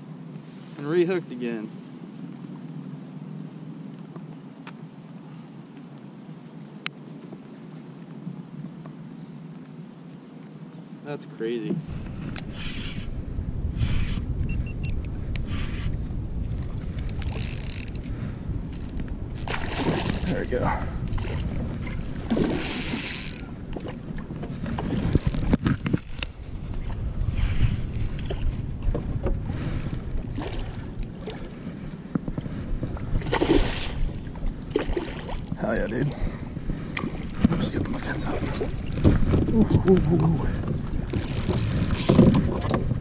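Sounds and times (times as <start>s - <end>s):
water along a hull: 0.0s - 43.0s
wind rumbling on microphone: 11.6s - 43.0s.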